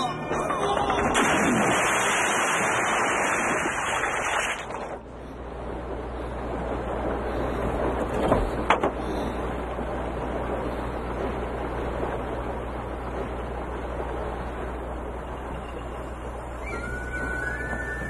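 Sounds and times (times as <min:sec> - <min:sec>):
steady rush of water: 0:00.0 - 0:15.2
low hum: 0:00.0 - 0:18.0
water splashing from wading: 0:00.8 - 0:05.1.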